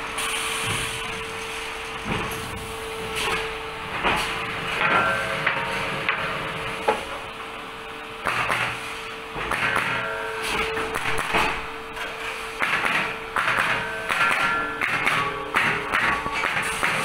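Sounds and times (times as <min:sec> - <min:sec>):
machinery hum: 0:00.0 - 0:17.0
sharp knocks and clanks: 0:03.2 - 0:07.2, 0:09.4 - 0:17.0.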